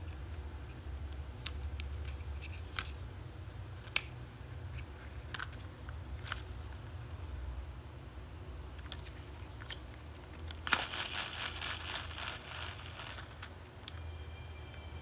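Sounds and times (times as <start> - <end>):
low steady hum: 0.0 - 15.0
plastic toy clicking and rattling: 8.8 - 14.0.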